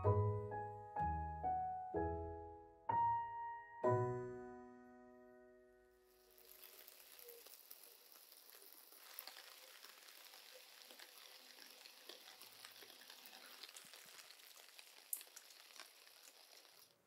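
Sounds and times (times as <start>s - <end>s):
light rain hissing: 6.0s - 17.0s
drips ticking: 6.3s - 17.0s.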